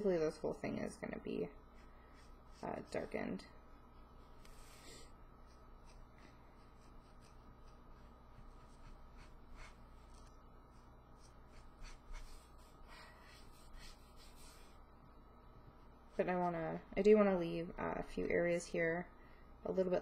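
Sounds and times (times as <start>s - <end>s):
marker scratching on cardstock: 3.9s - 14.8s.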